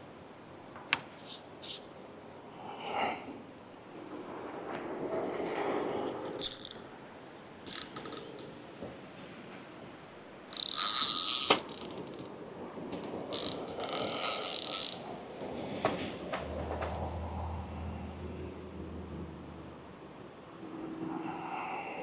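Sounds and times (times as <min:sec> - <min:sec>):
fishing reel ratcheting: 0:06.4 - 0:06.8, 0:07.6 - 0:08.5, 0:10.5 - 0:12.3, 0:13.3 - 0:15.0.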